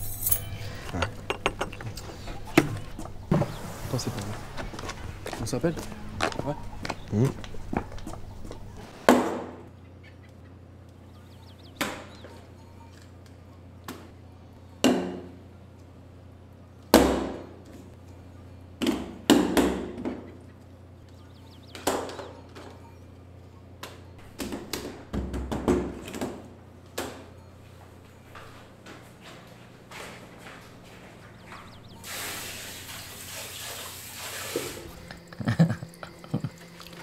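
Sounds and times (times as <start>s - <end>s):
steady low hum: 0.0s - 25.1s, 33.9s - 37.0s.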